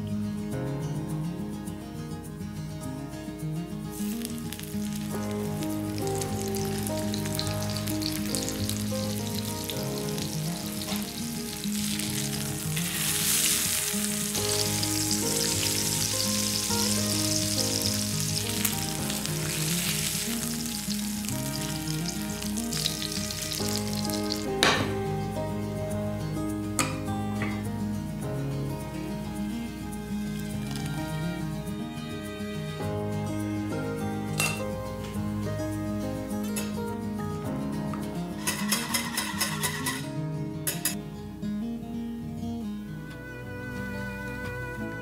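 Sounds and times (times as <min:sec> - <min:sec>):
soft background music: 0:00.0 - 0:45.0
fish sizzling in hot oil: 0:04.0 - 0:24.8.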